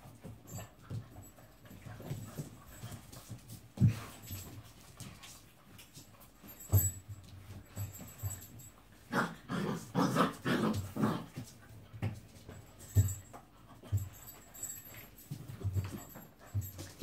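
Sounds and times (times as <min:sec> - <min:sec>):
puppies growling: 0:09.1 - 0:11.4.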